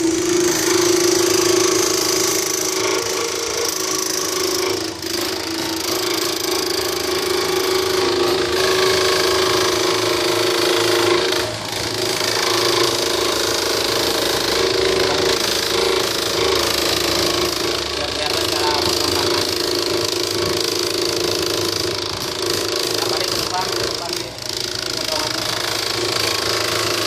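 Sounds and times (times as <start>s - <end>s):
slicing machine humming and clattering: 0.0s - 27.0s.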